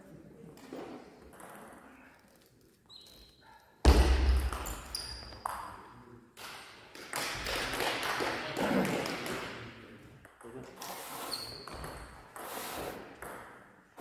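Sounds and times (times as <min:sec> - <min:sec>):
loud thump: 0:03.8 - 0:04.7.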